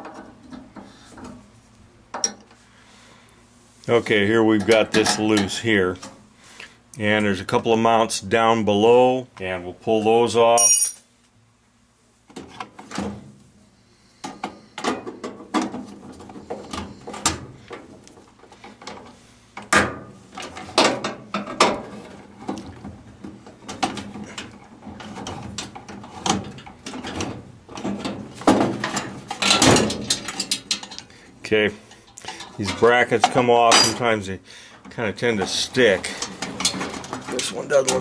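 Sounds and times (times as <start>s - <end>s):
metal brackets clicking and scraping: 23.7s - 31.1s.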